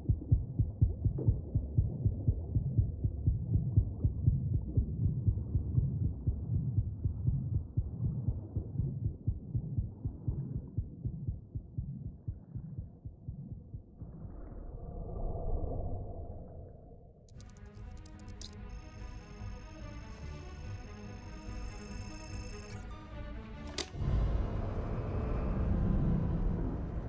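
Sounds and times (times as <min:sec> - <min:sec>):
music: 0:00.0 - 0:14.0, 0:17.3 - 0:27.0
muffled heartbeat thumps: 0:00.0 - 0:14.1.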